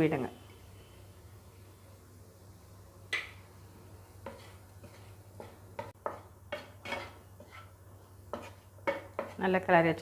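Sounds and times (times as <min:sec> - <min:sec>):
spatula scraping frying pan: 0:04.1 - 0:09.4.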